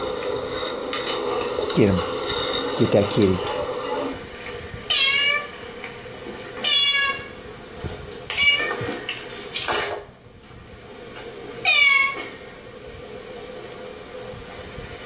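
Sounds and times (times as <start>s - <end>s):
cat meowing from television speakers: 4.9s - 5.6s, 6.6s - 7.4s, 8.3s - 9.0s, 11.6s - 12.4s.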